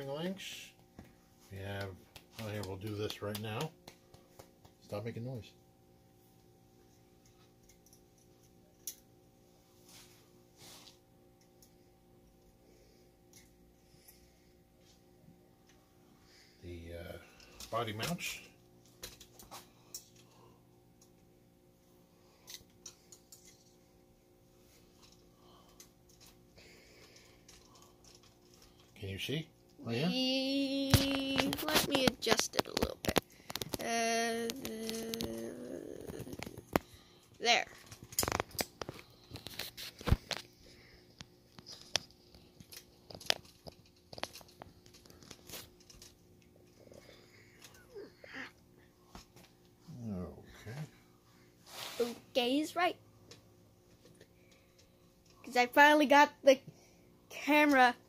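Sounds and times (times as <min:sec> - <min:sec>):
faint clicks of small parts: 0:06.4 - 0:09.3, 0:10.8 - 0:14.2, 0:17.3 - 0:21.3, 0:22.3 - 0:24.0, 0:24.7 - 0:29.8, 0:30.7 - 0:49.8, 0:53.2 - 0:56.1, 0:57.4 - 0:57.9.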